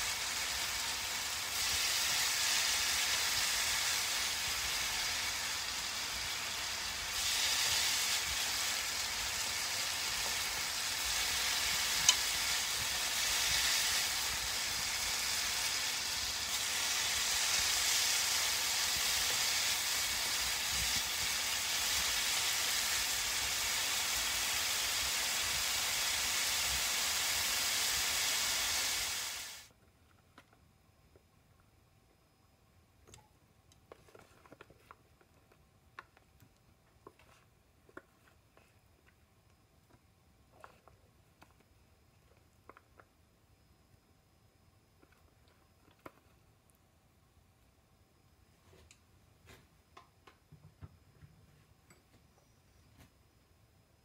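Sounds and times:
vegetables sizzling in a frying pan: 0.0s - 29.7s.

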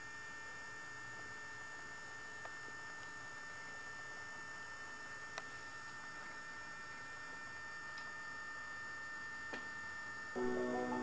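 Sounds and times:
electrical hum: 0.0s - 11.0s
high whining tones: 10.4s - 11.0s.

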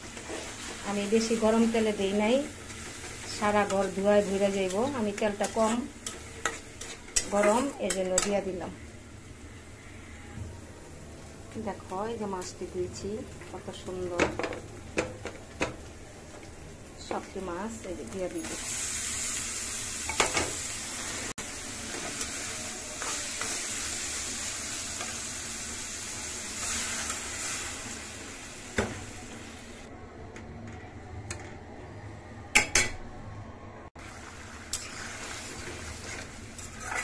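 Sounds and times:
fish sizzling in oil: 0.0s - 10.2s, 16.2s - 29.9s, 34.0s - 37.0s
metal spatula scraping pan: 2.7s - 8.4s, 34.7s - 37.0s.

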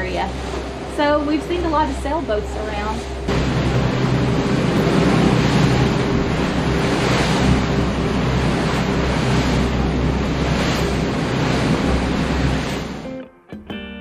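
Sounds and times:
boat engines droning: 0.0s - 13.2s
waves and bow spray rushing: 0.0s - 13.2s.

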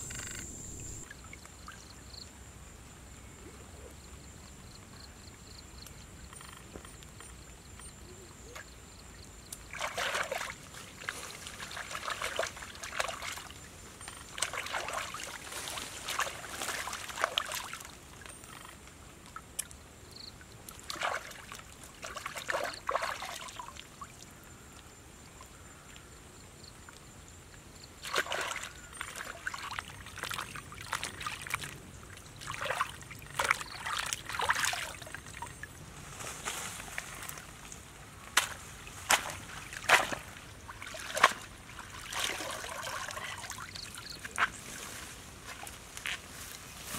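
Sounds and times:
water splashing and dribbling: 9.6s - 24.3s, 28.0s - 46.2s.

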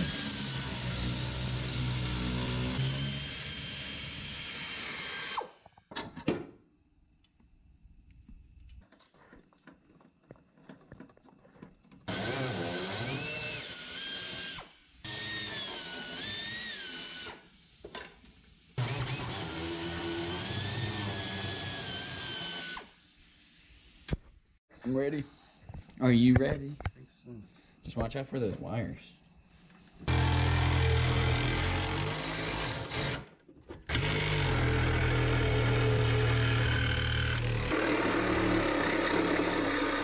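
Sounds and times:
pneumatic tool whining: 0.0s - 5.6s, 12.1s - 24.3s, 30.1s - 40.0s.

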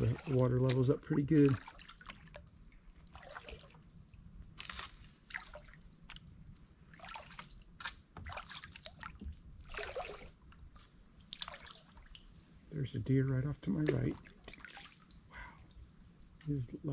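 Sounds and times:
kayak paddle strokes in water: 0.0s - 3.8s, 6.9s - 12.5s
water dripping off paddle: 0.0s - 4.3s, 5.3s - 12.6s, 13.8s - 16.6s.

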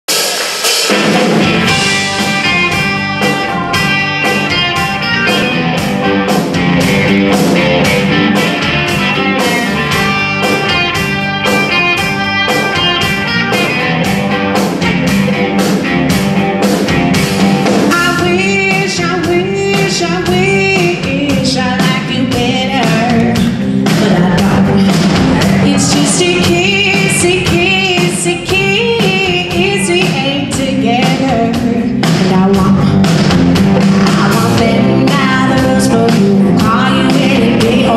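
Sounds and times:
drum kit beat: 0.0s - 37.9s
bass guitar: 0.1s - 37.9s
electric guitar: 0.1s - 37.9s
person singing lead vocals: 17.9s - 33.3s, 34.0s - 37.9s.

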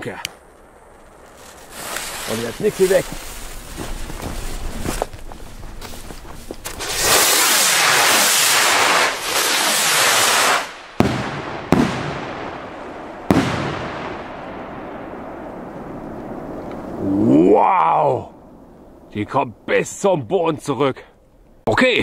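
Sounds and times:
firework rockets hissing: 6.6s - 12.1s
firework bursts with echoes: 6.7s - 16.6s.

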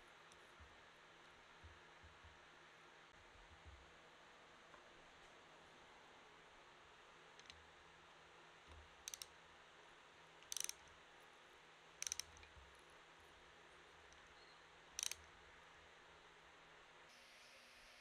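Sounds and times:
ratchet wrench clicking: 9.0s - 9.3s, 10.4s - 10.8s, 12.0s - 12.5s, 15.0s - 15.3s.

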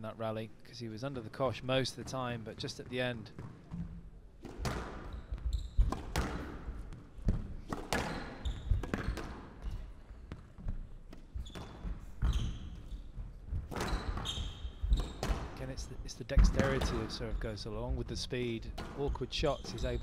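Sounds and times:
squash ball cracking off rackets: 4.4s - 5.1s, 5.8s - 9.7s
shoes squeaking on wooden floor: 4.7s - 7.3s, 7.9s - 15.5s, 19.2s - 20.0s.

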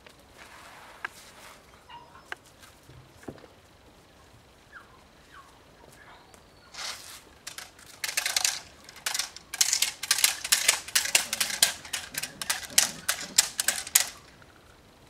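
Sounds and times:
training stick clattering: 6.8s - 14.4s.

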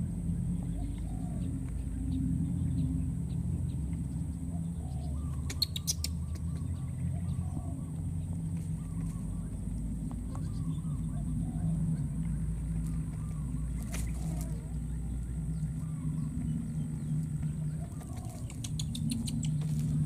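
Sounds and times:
steady low rumble: 0.0s - 20.0s
faint short chirping calls: 4.8s - 8.0s, 12.8s - 20.0s.

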